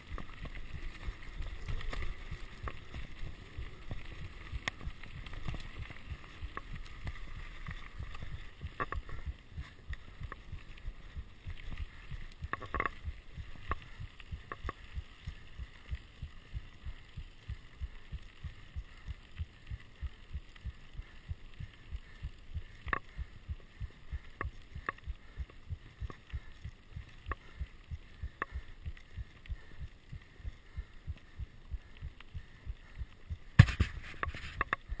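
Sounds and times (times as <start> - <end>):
bike clicks and rattles: 0.0 - 10.7, 33.6 - 35.0
bike tyres rumbling on gravel: 0.0 - 35.0.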